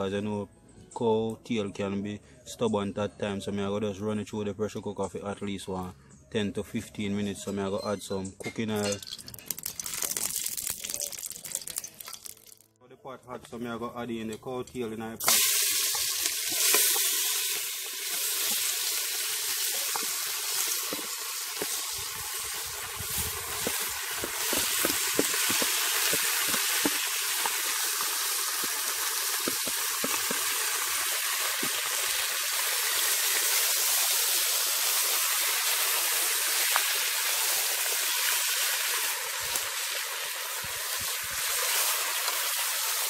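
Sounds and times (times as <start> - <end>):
oil popping and crackling: 8.8 - 12.7, 15.2 - 43.0
meat frying in hot oil: 15.2 - 43.0.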